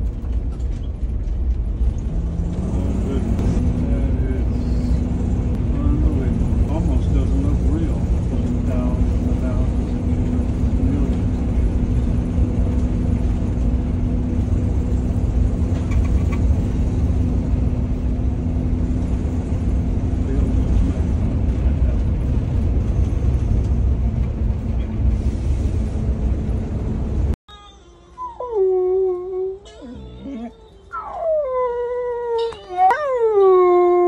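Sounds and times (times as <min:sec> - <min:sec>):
low drone: 0:00.0 - 0:27.4
road and engine noise: 0:00.0 - 0:27.4.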